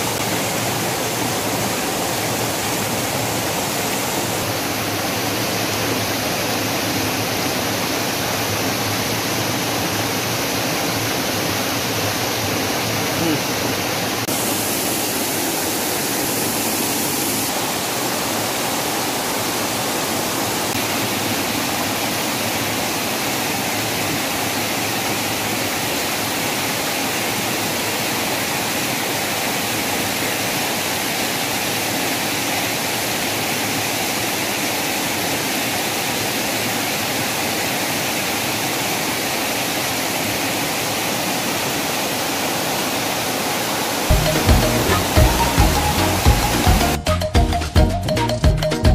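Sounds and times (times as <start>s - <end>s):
waterfall over rocks: 0.0s - 47.0s
music with a beat: 44.1s - 48.9s.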